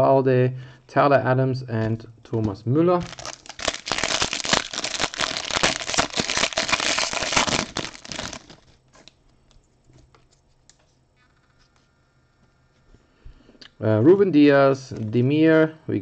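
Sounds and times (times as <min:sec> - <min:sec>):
foil wrapper tearing and crinkling: 0:03.0 - 0:09.2.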